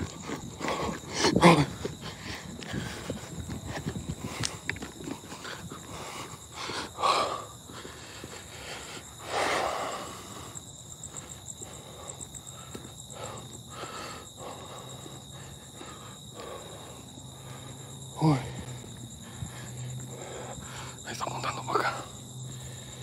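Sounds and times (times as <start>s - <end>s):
footsteps on rough ground: 0.0s - 6.9s.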